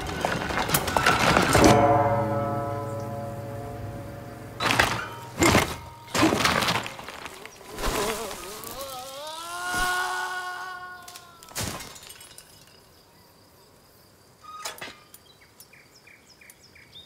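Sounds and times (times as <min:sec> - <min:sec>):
loud crashing thuds: 0:00.0 - 0:07.4.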